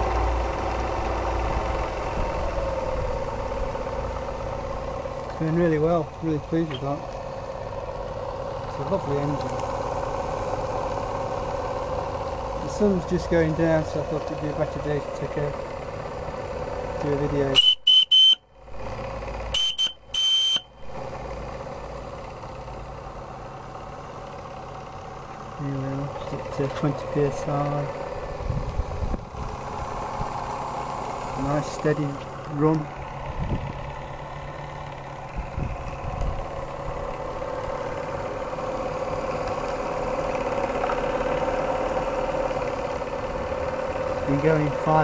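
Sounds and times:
steam whistle toots: 17.6s - 18.4s, 19.5s - 20.7s.

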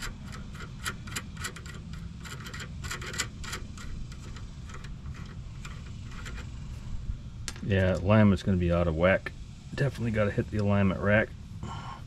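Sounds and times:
metallic clicks and scraping: 0.0s - 8.1s
steady low rumble: 0.0s - 12.0s.

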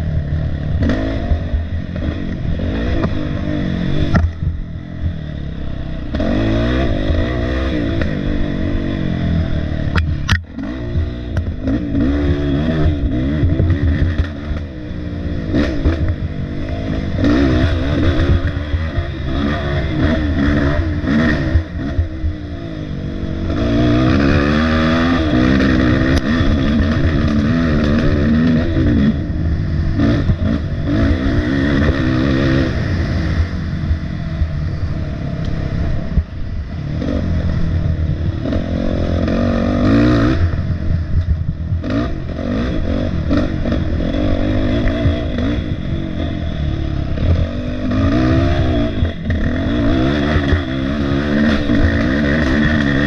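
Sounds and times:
dirt bike engine revving: 0.0s - 53.0s
clatter: 0.7s - 5.2s, 9.9s - 14.7s, 23.4s - 32.4s, 46.5s - 53.0s.

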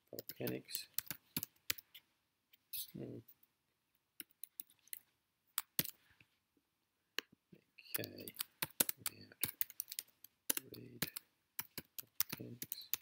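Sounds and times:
computer keyboard keys clicking: 5.6s - 6.0s, 8.0s - 13.0s.

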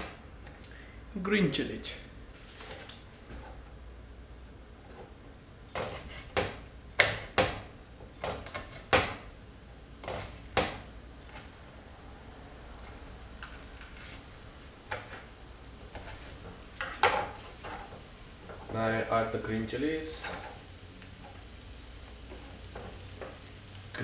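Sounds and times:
knife chopping on plastic board: 5.8s - 9.2s, 10.0s - 10.8s.

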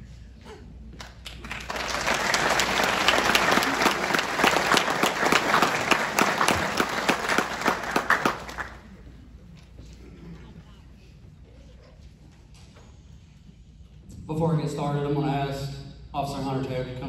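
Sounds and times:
audience applauding: 1.0s - 9.1s.

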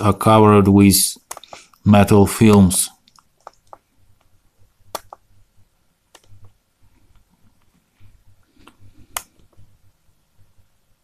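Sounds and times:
laptop clicks: 1.2s - 1.8s, 2.5s - 4.3s, 4.9s - 5.3s, 6.1s - 6.6s.

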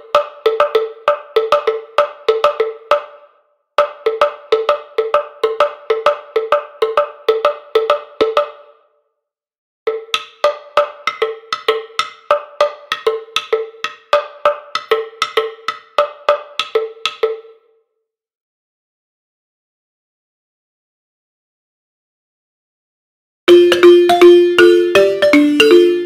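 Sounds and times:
wooden slit drum rhythm: 0.0s - 8.8s, 9.9s - 17.6s, 23.5s - 26.0s.

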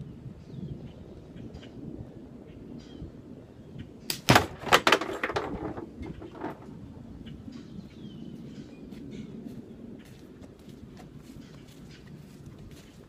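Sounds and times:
bird chirping: 7.2s - 10.1s.

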